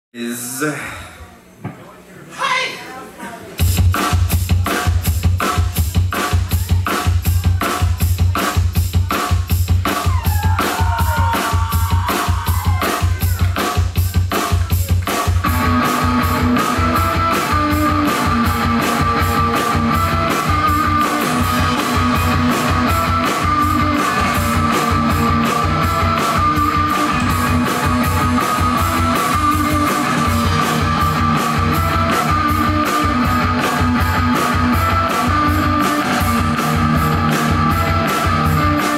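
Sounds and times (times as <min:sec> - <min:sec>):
fast drum beat: 0:03.6 - 0:38.9
distorted guitar chords: 0:15.3 - 0:38.9.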